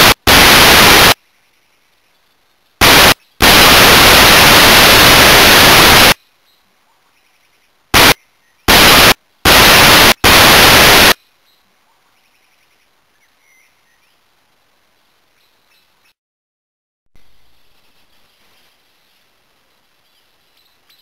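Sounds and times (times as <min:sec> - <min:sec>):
loud static hiss: 0:00.0 - 0:06.2, 0:07.6 - 0:11.2.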